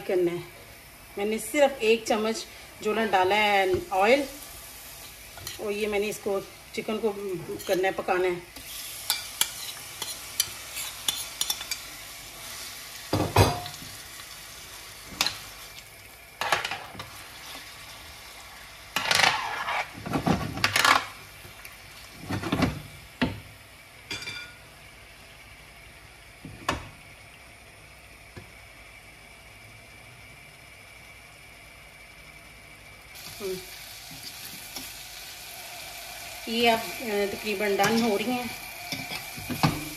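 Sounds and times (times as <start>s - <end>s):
chicken sizzling in a pan: 0.1s - 20.1s, 33.1s - 39.9s
metal spoon scraping and clinking: 7.6s - 7.9s, 9.1s - 11.8s, 38.9s - 39.3s.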